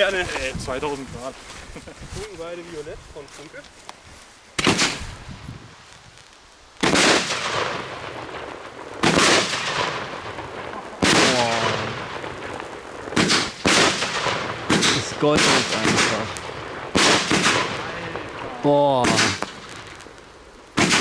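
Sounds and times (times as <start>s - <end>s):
firework bangs with echo: 4.6s - 5.1s, 6.8s - 20.1s, 20.7s - 21.0s.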